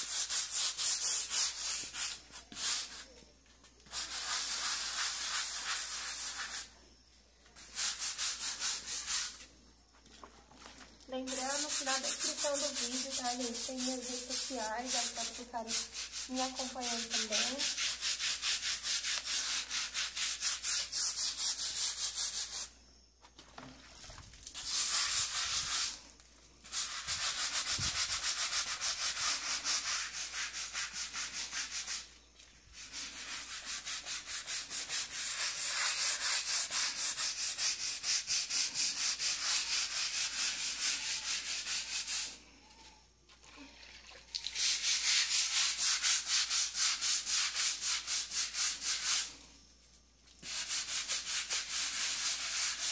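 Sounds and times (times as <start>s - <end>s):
brush scrubbing a wall: 0.0s - 6.8s, 7.5s - 9.5s, 11.2s - 22.7s, 24.5s - 42.4s, 44.6s - 49.4s, 50.3s - 52.9s.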